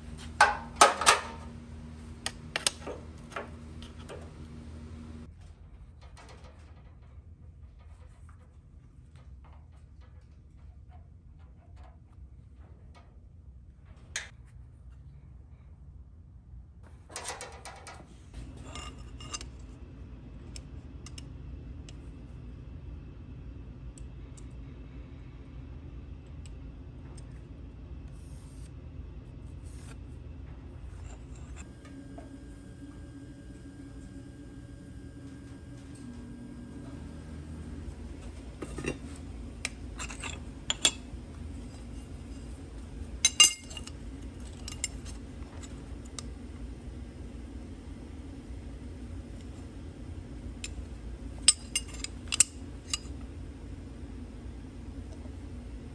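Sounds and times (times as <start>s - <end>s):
low hum: 0.0s - 55.9s
metal clinks and scrapes: 39.9s - 42.6s, 43.2s - 45.8s, 51.5s - 53.2s.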